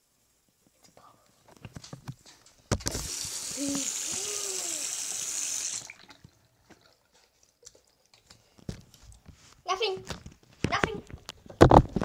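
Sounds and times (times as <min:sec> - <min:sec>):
tap water running into sink: 0:02.8 - 0:07.0.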